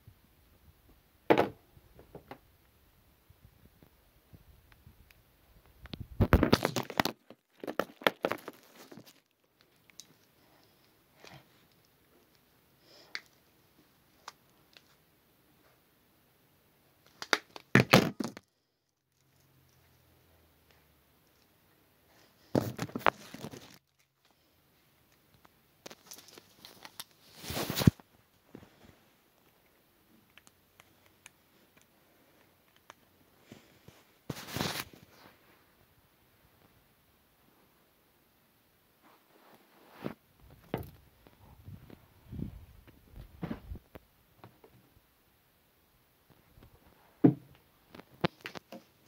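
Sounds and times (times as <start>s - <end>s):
plastic packaging crinkling: 6.2s - 10.5s, 25.8s - 28.0s.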